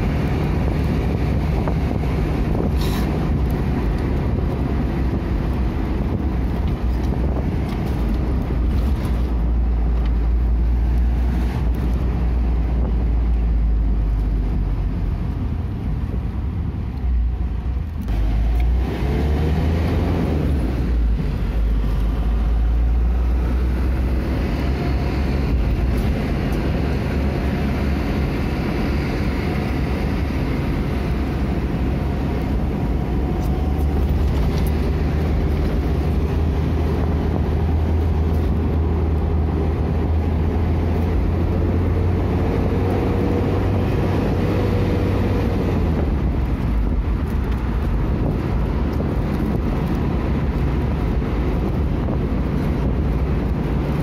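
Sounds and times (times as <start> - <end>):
vehicle engine and road rumble: 0.0 - 54.0.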